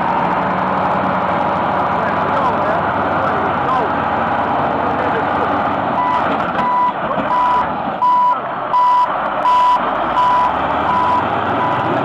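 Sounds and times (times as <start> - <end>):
road-building machinery running: 0.0 - 12.0
backup alarm beeping: 6.0 - 11.9.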